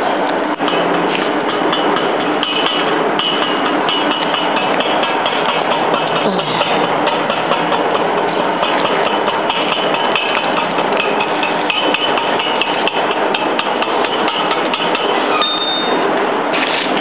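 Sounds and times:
workshop noise: 0:00.0 - 0:17.0
hammer striking steel: 0:00.6 - 0:16.1
brief high metallic ring: 0:15.3 - 0:16.0.

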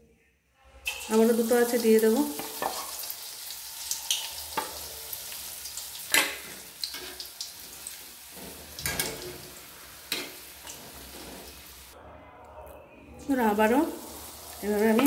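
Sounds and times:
deep-frying sizzle: 0:00.8 - 0:12.0, 0:13.3 - 0:15.0
metal spatula scraping pan: 0:02.4 - 0:03.1, 0:08.2 - 0:11.9.

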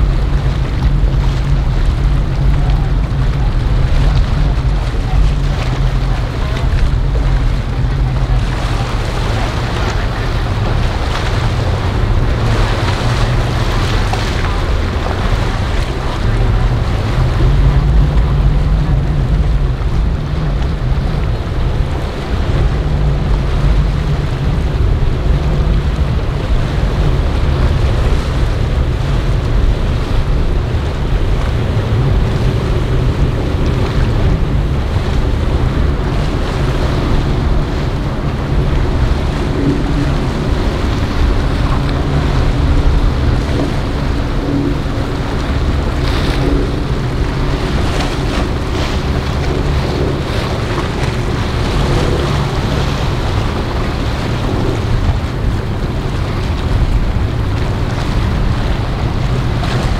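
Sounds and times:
boat engine drone: 0:00.0 - 0:59.9
water spray and waves rushing: 0:00.0 - 0:59.9
wind buffeting microphone: 0:00.0 - 0:59.9.

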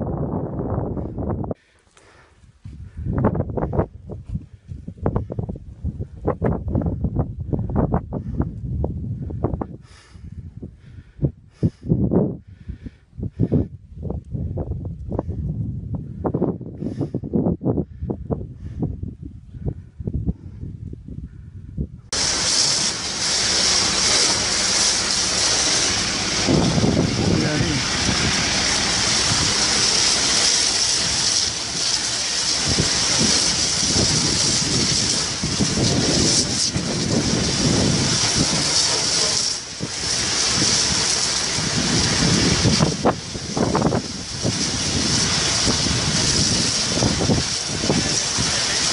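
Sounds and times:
wind buffeting microphone: 0:00.0 - 0:48.9
hose jet spraying water: 0:22.1 - 0:48.9.

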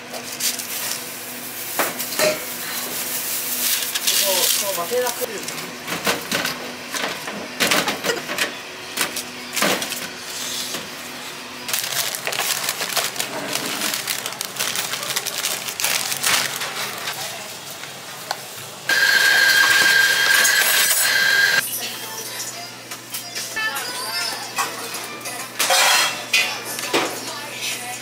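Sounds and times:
paper boxes rustling: 0:11.7 - 0:17.2
metal baking tray clatter: 0:25.6 - 0:26.4.

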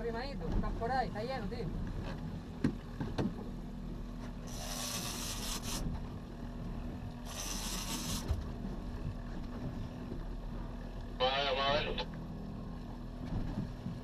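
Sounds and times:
boat engine hum: 0:00.0 - 0:14.0
fishing reel drag buzzing: 0:04.4 - 0:05.9, 0:07.2 - 0:08.3.

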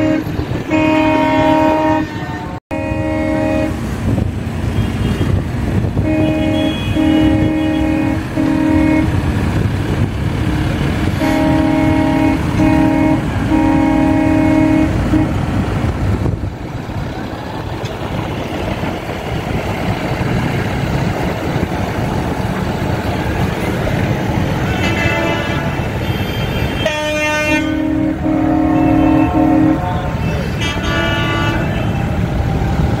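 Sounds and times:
vehicle horns honking: 0:00.0 - 0:03.9, 0:04.7 - 0:09.2, 0:11.1 - 0:15.4, 0:24.6 - 0:32.2
rumble of engines: 0:00.0 - 0:33.0.

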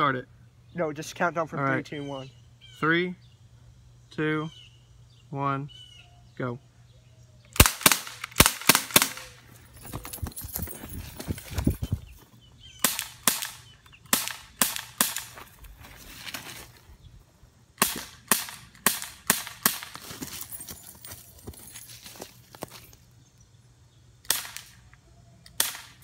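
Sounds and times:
air pistol shots: 0:07.5 - 0:09.4, 0:12.8 - 0:15.4, 0:17.8 - 0:20.0, 0:24.2 - 0:24.9, 0:25.5 - 0:26.0.

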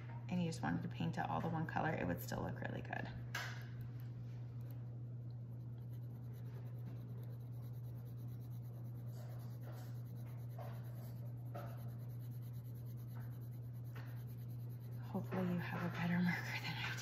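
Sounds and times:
steady low hum: 0:00.0 - 0:17.0
marker scratching: 0:05.8 - 0:17.0.

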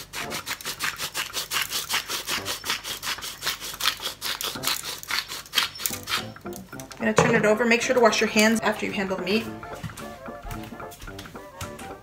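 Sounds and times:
pepper mill grinding: 0:00.0 - 0:07.1.

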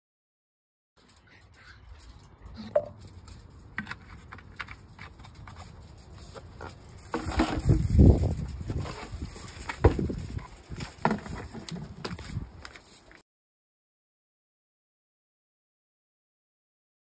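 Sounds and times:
bottles and containers clicking: 0:02.6 - 0:05.7.

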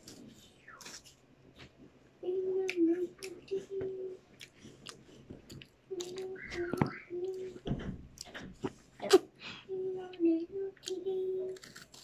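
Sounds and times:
child humming: 0:02.2 - 0:04.2, 0:05.9 - 0:07.7, 0:09.0 - 0:11.7
child crunching biscuit: 0:10.8 - 0:12.0.

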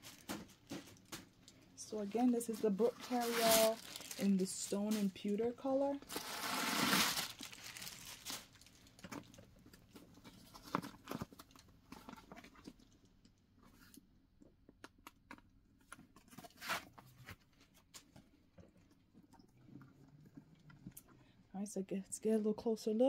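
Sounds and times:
paper rustling and crinkling: 0:02.2 - 0:05.3, 0:06.0 - 0:12.8.

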